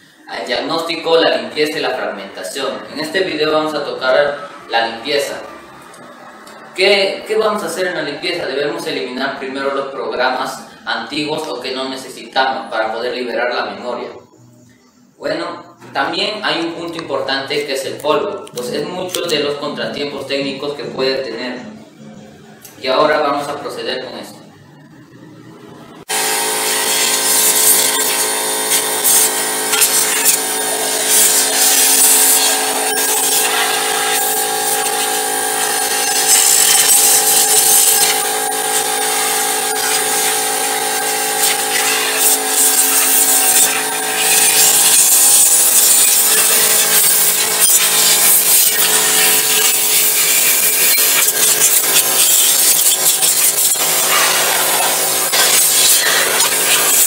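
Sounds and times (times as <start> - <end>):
electric blower motor rushing air: 26.0 - 57.0.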